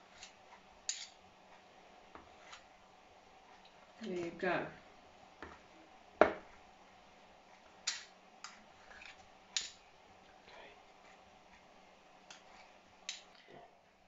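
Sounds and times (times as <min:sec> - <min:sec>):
metal spoons clinking and scraping: 0:00.1 - 0:01.2.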